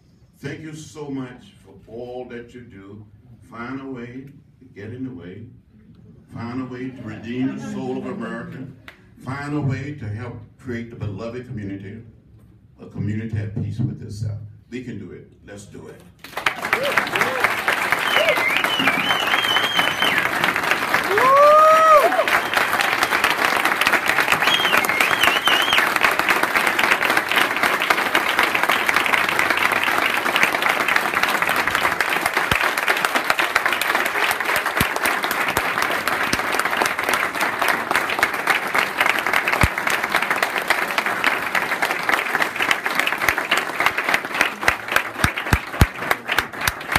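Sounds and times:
audience applauding: 16.2s - 46.9s
high whoop: 16.7s - 20.2s, 21.0s - 22.5s.

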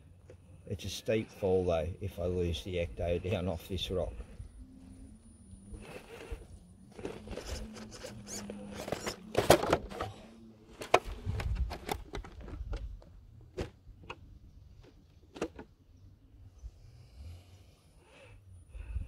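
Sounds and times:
faint steady hum: 0.0s - 19.0s
handling knocks and scrapes: 5.8s - 12.9s.

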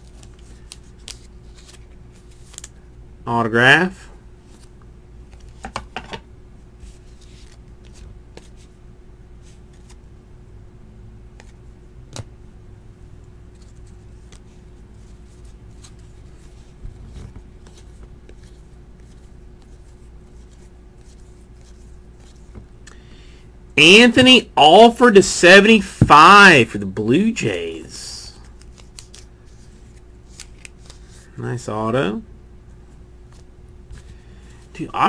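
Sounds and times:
trading cards clicking and slapping: 0.0s - 2.8s, 5.3s - 6.2s, 11.3s - 12.3s, 13.5s - 14.6s, 28.4s - 31.2s
faint steady hum: 0.0s - 35.0s.

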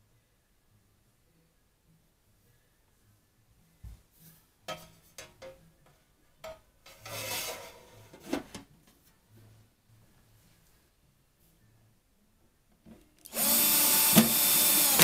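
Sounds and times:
metal scraping on metal: 6.4s - 8.6s.

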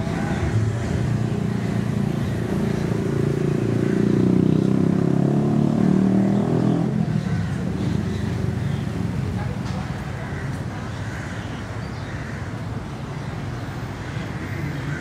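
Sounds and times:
vehicle engine rumbling: 0.0s - 11.2s.

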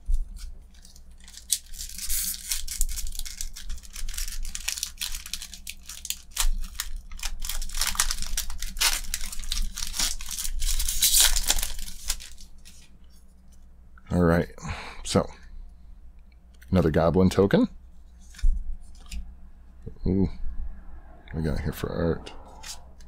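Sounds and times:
foil wrapper tearing and crinkling: 0.0s - 12.9s.

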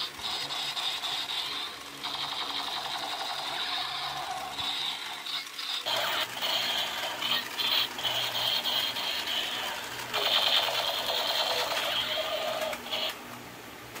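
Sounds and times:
toy gun motor and gears rattling: 0.0s - 13.2s.

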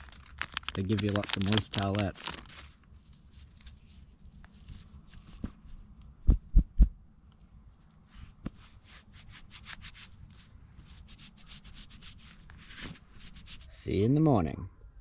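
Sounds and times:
towelette rustling and crinkling: 0.0s - 5.8s
loud dull thumps: 6.3s - 7.0s.

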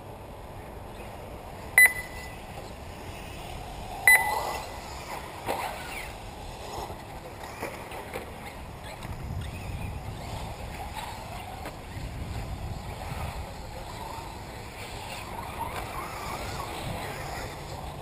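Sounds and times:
model car motors whining: 2.6s - 18.0s.

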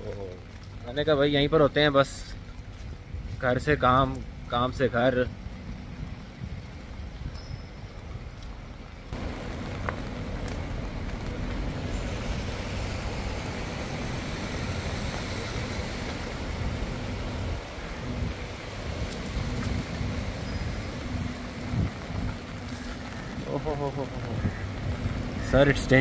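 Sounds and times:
traffic rumble: 0.0s - 26.0s
heavy rain hissing: 9.2s - 26.0s.

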